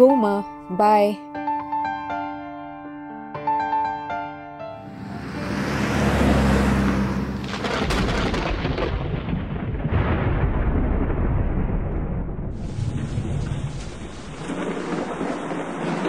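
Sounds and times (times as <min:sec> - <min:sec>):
thunder rolling: 0:04.9 - 0:16.0
sharp thunderclap: 0:07.3 - 0:16.0
steady rain: 0:07.4 - 0:10.9, 0:12.5 - 0:16.0.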